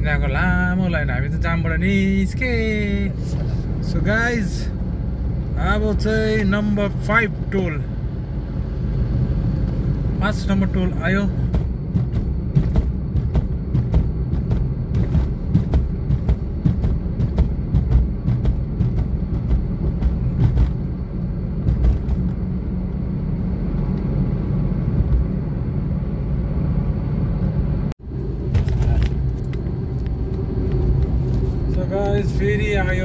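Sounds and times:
vehicle road and engine rumble: 0:00.0 - 0:33.0.

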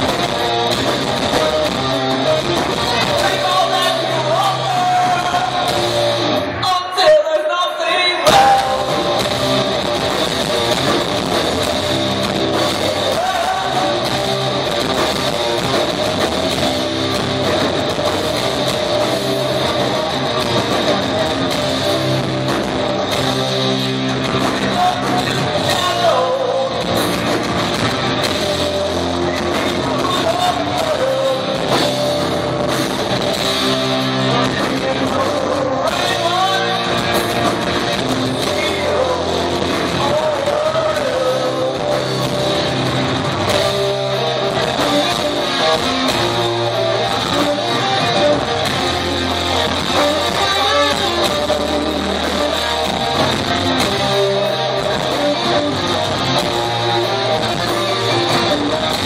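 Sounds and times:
bass guitar: 0:00.0 - 0:06.8, 0:08.2 - 0:59.0
distorted electric guitars: 0:00.0 - 0:59.0
drums: 0:00.0 - 0:59.0
person singing: 0:01.3 - 0:06.0, 0:06.6 - 0:09.6, 0:12.9 - 0:14.3, 0:24.4 - 0:27.2, 0:29.3 - 0:32.4, 0:33.8 - 0:42.5.

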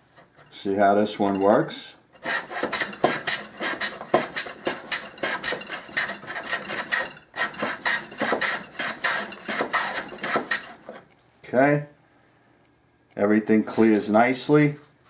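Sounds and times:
wooden plane scraping wood: 0:02.2 - 0:11.0.

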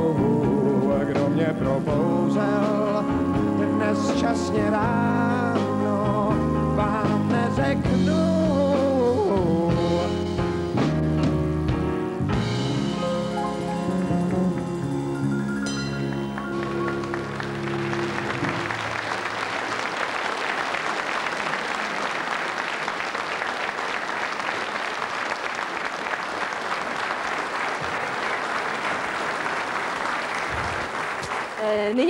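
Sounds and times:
audience applauding: 0:15.8 - 0:32.0.

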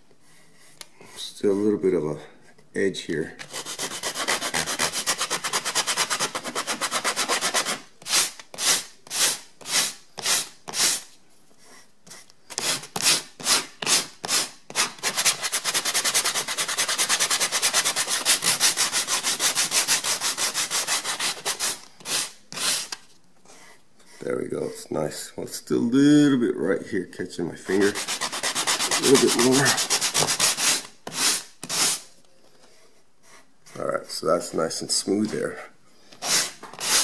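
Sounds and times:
sandpaper rubbing on wood: 0:03.5 - 0:11.1, 0:12.6 - 0:22.9, 0:27.7 - 0:32.0, 0:36.2 - 0:37.0.

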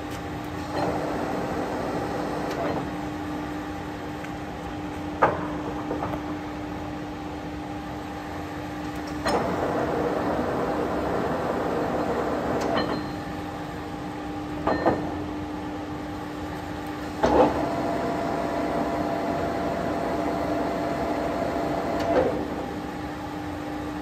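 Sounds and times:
lathe humming and whining: 0:00.6 - 0:04.1, 0:09.4 - 0:14.2, 0:17.3 - 0:24.0.

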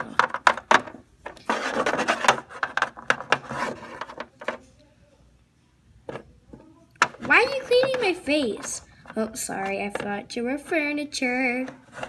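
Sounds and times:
paper rubbing scratchily: 0:01.4 - 0:02.7.

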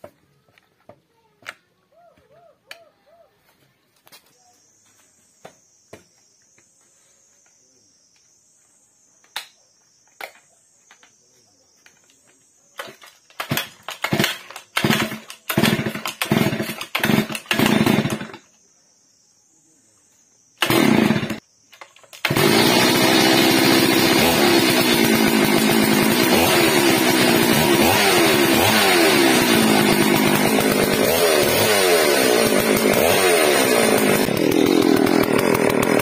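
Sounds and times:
chainsaw engine running: 0:12.8 - 0:18.4, 0:20.6 - 0:21.4, 0:22.1 - 0:36.0
chainsaw pull-starting: 0:12.8 - 0:18.4, 0:20.6 - 0:36.0.

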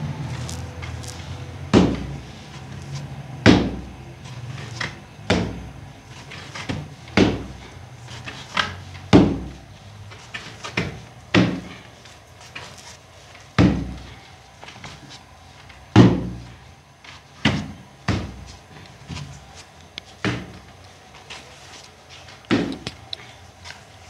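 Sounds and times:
heavy regular thuds: 0:00.0 - 0:12.6, 0:13.5 - 0:14.9, 0:15.8 - 0:16.6, 0:17.4 - 0:19.5, 0:20.2 - 0:20.8, 0:22.5 - 0:23.0.

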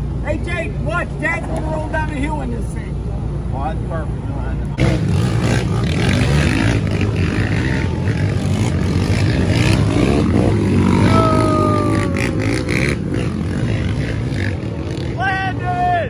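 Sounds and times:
quad engines revving past: 0:04.8 - 0:15.7.

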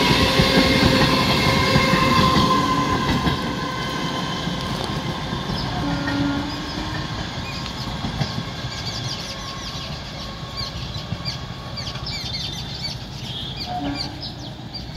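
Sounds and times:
electric train rumbling: 0:00.0 - 0:14.9
birds chirping: 0:05.4 - 0:14.9.

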